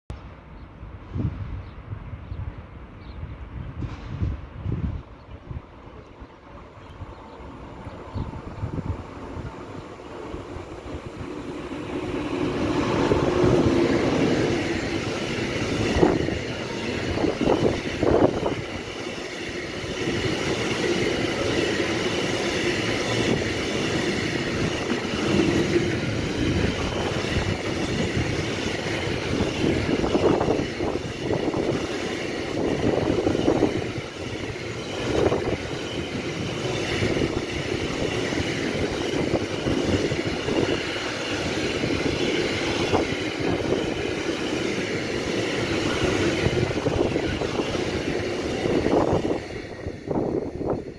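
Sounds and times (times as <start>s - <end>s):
electric locomotive passing: 0.2s - 50.9s
train wheels rumbling on rails: 0.2s - 50.9s
train wagon clunks: 3.8s - 4.4s.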